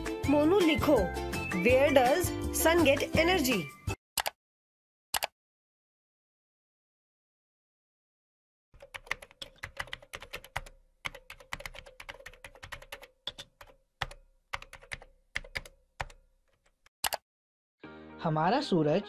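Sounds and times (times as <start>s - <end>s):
keyboard keys clicking: 8.8s - 17.2s.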